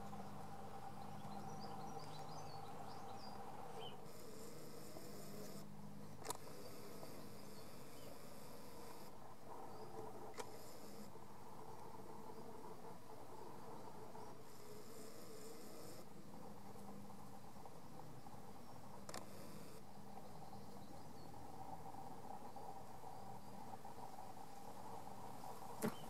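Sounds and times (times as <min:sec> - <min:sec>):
faint high buzz: 0:00.0 - 0:26.0
bird chirps: 0:00.2 - 0:04.0.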